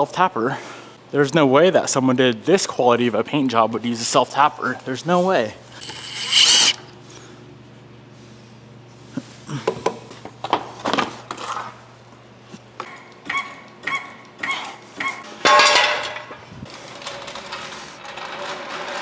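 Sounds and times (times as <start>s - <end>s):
metal clatter: 15.4s - 16.4s.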